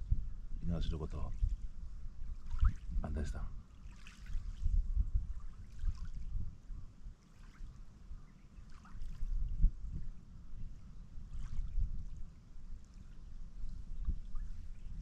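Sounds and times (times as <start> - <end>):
wind rumble on microphone: 0.0 - 15.0
waves lapping at shore: 2.4 - 2.9, 3.7 - 4.7, 5.3 - 6.3, 7.1 - 9.4, 11.2 - 13.8.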